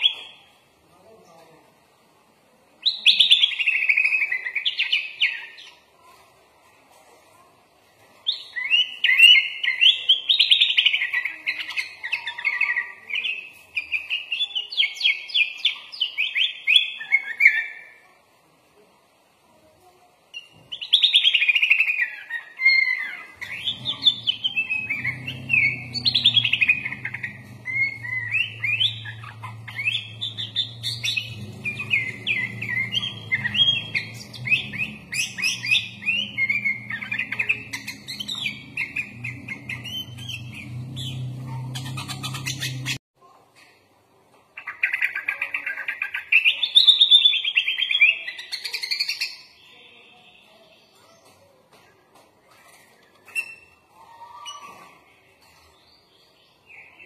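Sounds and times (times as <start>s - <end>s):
bird chattering song: 20.4s - 43.0s, 44.6s - 51.4s
faint low hum: 22.9s - 43.7s.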